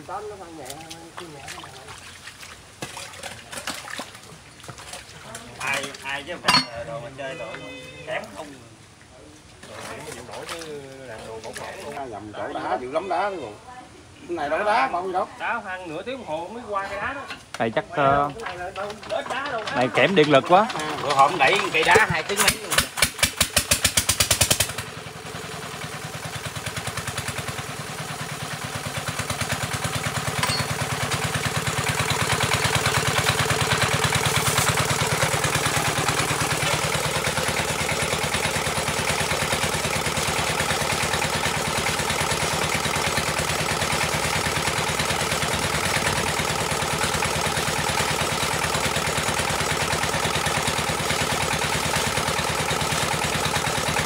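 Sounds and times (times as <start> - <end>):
motor running with fast pulse: 29.1 - 54.0.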